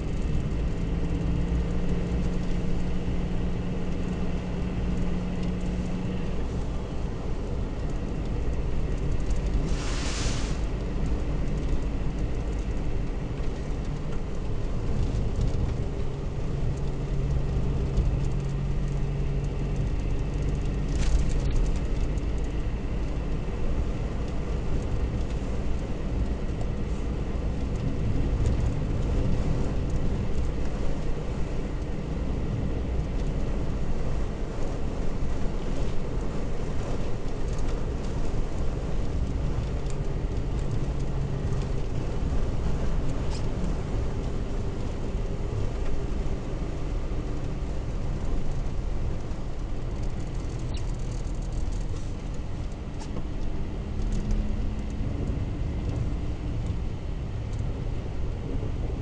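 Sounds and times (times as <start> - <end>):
car rumbling on snow: 0.0 - 59.0
brief hiss: 9.6 - 10.7.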